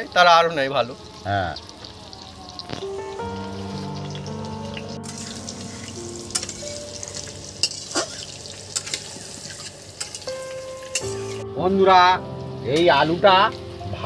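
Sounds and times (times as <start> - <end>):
potatoes sizzling in oil: 0.0 - 11.4
music with long held notes: 2.7 - 8.9, 10.0 - 14.0
metal spatula clinking on pan: 6.3 - 11.4.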